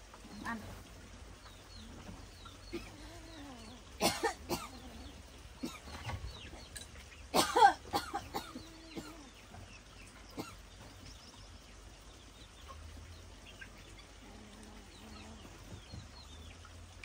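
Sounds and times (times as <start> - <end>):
person coughing: 4.0 - 4.9, 7.4 - 9.2.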